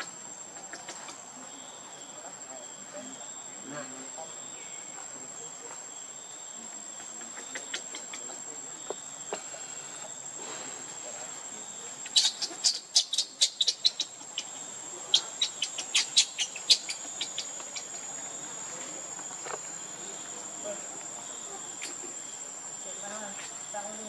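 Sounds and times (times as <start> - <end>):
high insect drone: 0.0 - 24.0
baby monkey squealing: 12.0 - 17.9.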